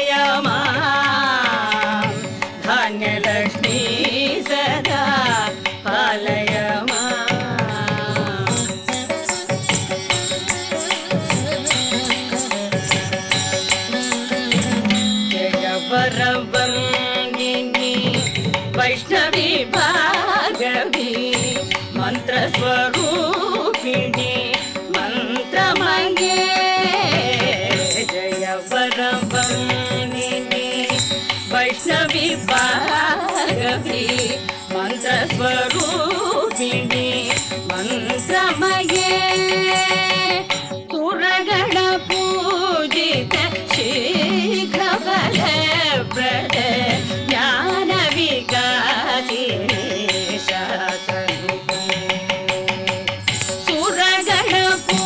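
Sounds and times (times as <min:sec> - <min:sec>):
women singing: 0:00.0 - 0:18.1, 0:18.8 - 0:24.4, 0:25.0 - 0:51.0, 0:53.2 - 0:55.0
hand drum strokes: 0:08.4 - 0:15.2, 0:27.6 - 0:40.4.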